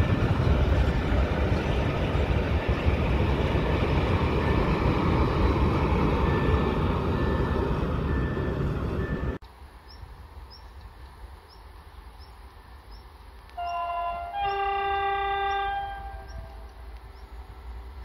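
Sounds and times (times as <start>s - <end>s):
train wheels rumbling on rails: 0.0s - 18.0s.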